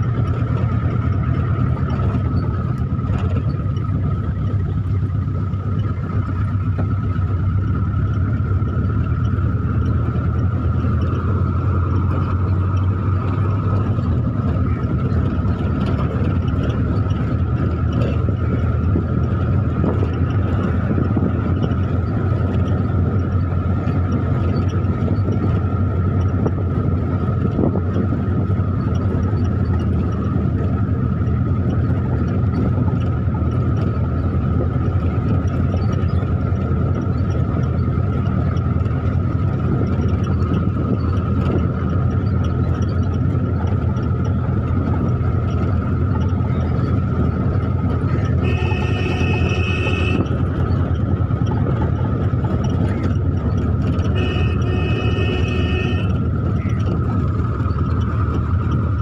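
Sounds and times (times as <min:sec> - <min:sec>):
car engine and road rumble: 0:00.0 - 0:59.0
constant whine: 0:00.0 - 0:59.0
car horn: 0:48.1 - 0:50.6, 0:53.8 - 0:56.8.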